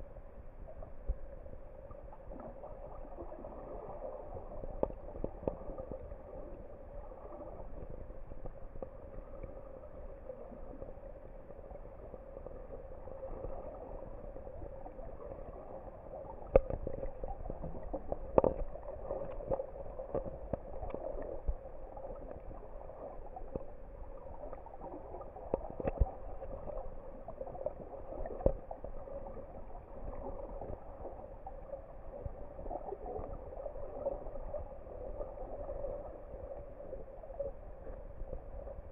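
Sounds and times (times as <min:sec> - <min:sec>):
muffled underwater hum: 0:00.0 - 0:38.9
sharp underwater clicks and knocks: 0:16.5 - 0:21.2, 0:25.5 - 0:26.3.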